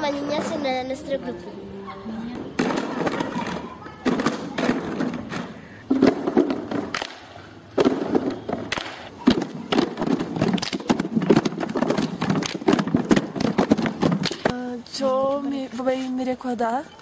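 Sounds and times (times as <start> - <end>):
children's voices: 0.0 - 5.6
children clapping hands: 6.9 - 7.3, 8.5 - 14.5.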